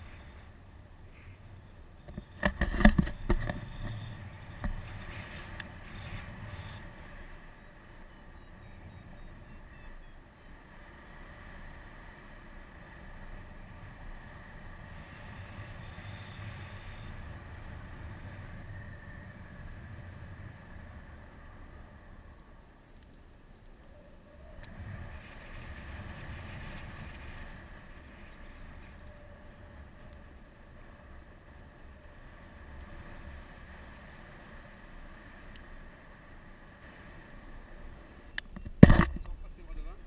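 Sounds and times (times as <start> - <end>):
wind rushing over microphone: 24.4 - 39.6.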